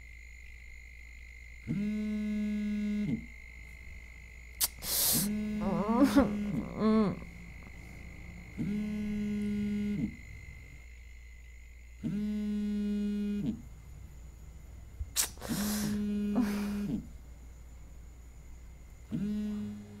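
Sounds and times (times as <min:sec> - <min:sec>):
phone vibrating on table: 0:01.6 - 0:03.4, 0:05.1 - 0:10.8, 0:12.0 - 0:13.7, 0:15.4 - 0:17.1, 0:19.1 - 0:20.0.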